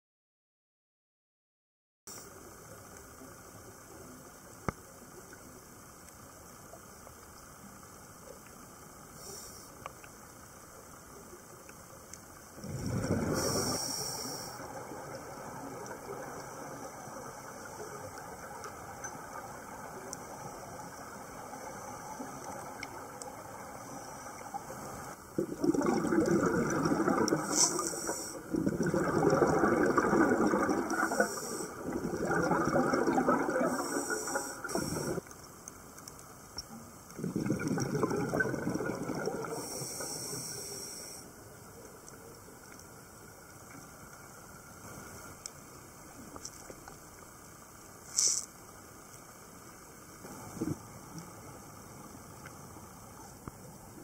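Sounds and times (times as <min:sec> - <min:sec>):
faint underwater hiss: 0:02.1 - 0:54.0
exhaled air bubbling underwater: 0:12.4 - 0:35.3, 0:36.6 - 0:45.1, 0:49.9 - 0:54.0.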